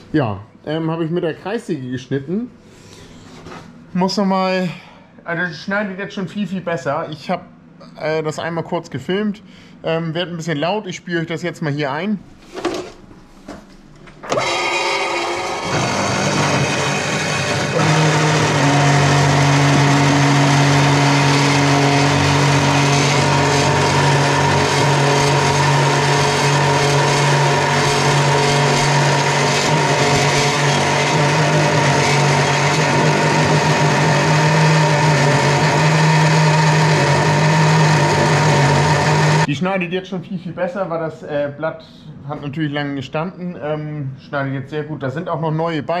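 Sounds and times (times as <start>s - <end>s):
cold saw motor hum: 14.3s - 39.5s.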